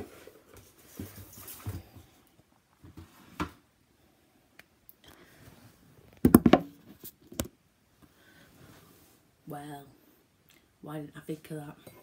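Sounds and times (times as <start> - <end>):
tablet handling knocks and rubs: 6.1 - 7.5.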